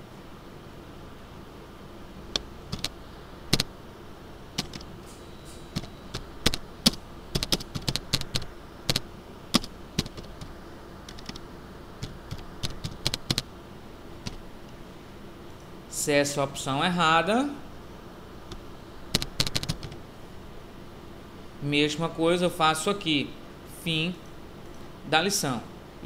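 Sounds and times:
computer keyboard typing: 0:02.3 - 0:03.7, 0:04.6 - 0:04.9, 0:05.8 - 0:10.5, 0:11.1 - 0:11.4, 0:12.0 - 0:13.5, 0:19.1 - 0:20.0.

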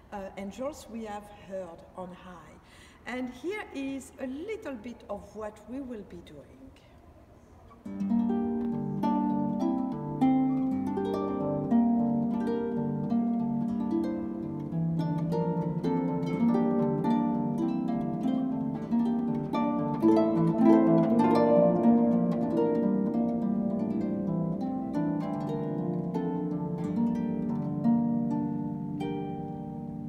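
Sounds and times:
harp plucked notes and chords: 0:07.9 - 0:30.0.

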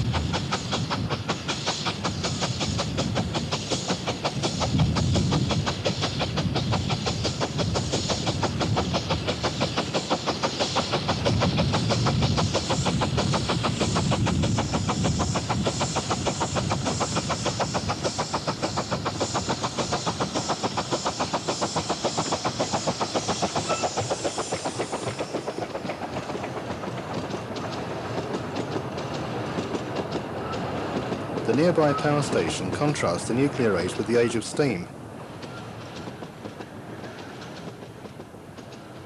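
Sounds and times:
steam locomotive chuffing: 0:00.0 - 0:39.0.

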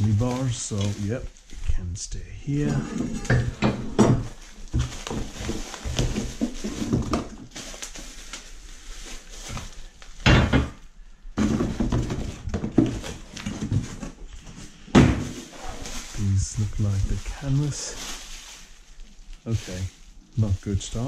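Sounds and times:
packaging noise: 0:00.0 - 0:10.3.

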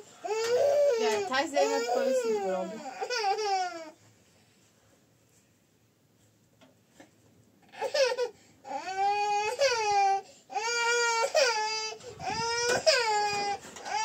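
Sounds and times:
baby crying: 0:00.2 - 0:04.0, 0:07.7 - 0:14.0.

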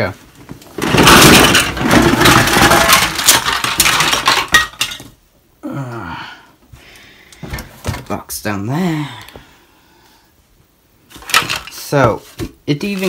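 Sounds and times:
plastic toy pieces clattering: 0:00.8 - 0:05.2, 0:11.2 - 0:11.9.

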